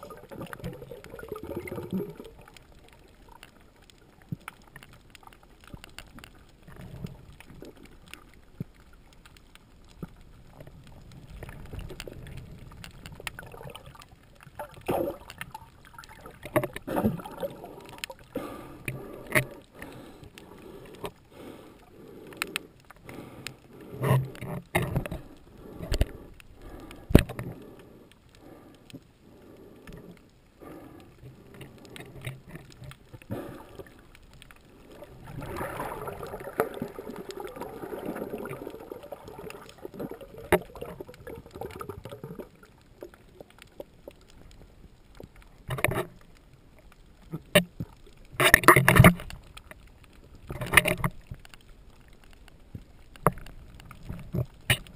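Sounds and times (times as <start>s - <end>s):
underwater knocks and clicks: 0.0s - 21.5s, 22.1s - 30.3s, 31.0s - 54.9s
regulator bubbles: 11.3s - 18.2s, 35.0s - 42.7s.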